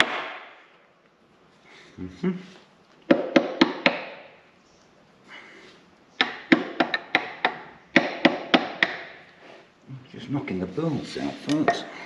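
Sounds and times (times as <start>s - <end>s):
hammer striking metal bolts: 0.0s - 0.4s.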